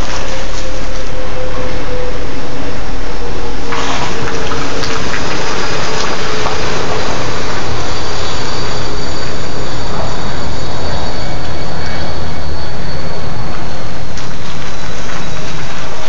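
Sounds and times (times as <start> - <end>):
tyres rushing on wet gravel: 0.0 - 1.2, 3.6 - 9.0, 13.5 - 16.0.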